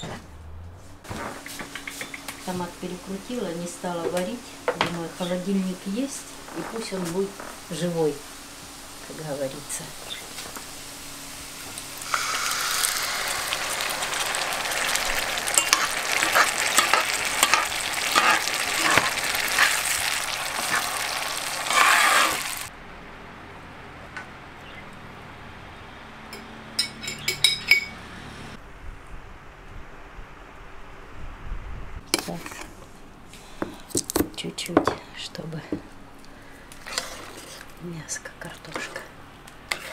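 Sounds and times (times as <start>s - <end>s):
tomato sizzling in frying pan: 2.2s - 22.7s
metal spoon scraping pan: 15.4s - 22.7s, 32.2s - 32.8s, 36.8s - 37.7s, 39.7s - 39.9s.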